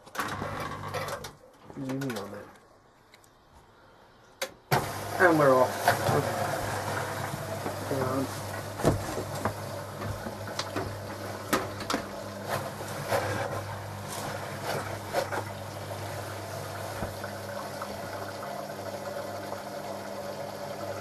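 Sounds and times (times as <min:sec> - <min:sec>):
water rushing into washing machine: 0:04.7 - 0:21.0.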